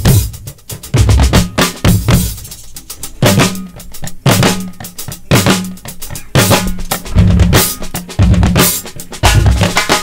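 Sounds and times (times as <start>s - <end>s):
african percussion groove: 0.0s - 10.0s
drum kit: 0.0s - 10.0s
talking drums: 0.0s - 10.0s
heavy accented drum hit: 6.4s - 10.0s.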